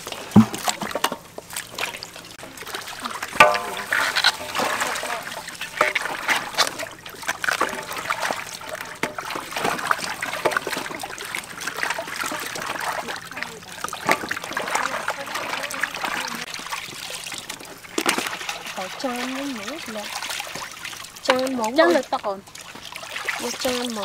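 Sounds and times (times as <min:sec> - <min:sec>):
water splashing in metal basin: 0:00.0 - 0:24.0.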